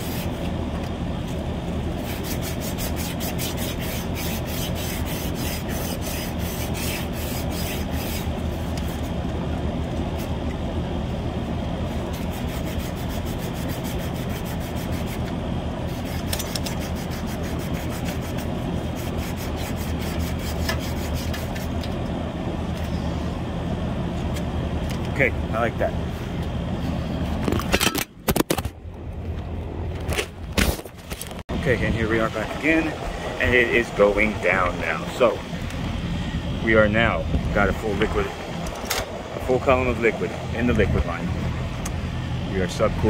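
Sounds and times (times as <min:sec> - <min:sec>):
sand cloth rasping on pipe: 0:00.0 - 0:00.4, 0:02.0 - 0:09.2, 0:11.9 - 0:21.8
air conditioner hum: 0:00.0 - 0:43.0.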